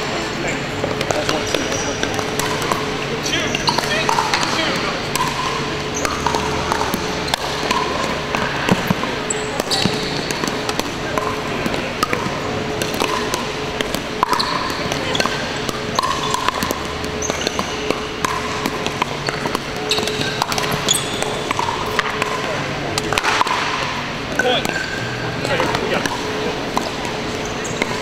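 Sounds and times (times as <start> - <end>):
shoes squeaking on court: 0.0 - 23.1, 23.8 - 28.0
paddles popping against ball: 0.8 - 28.0.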